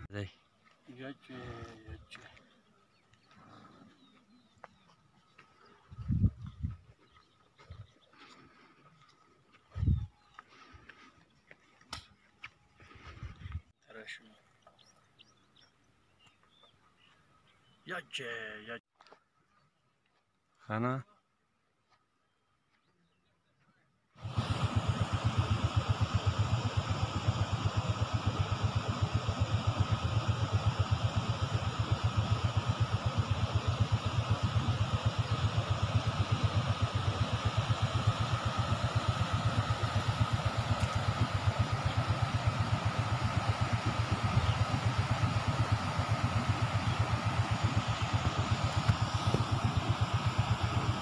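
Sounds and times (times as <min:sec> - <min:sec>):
small engine idling: 0:24.2 - 0:51.0.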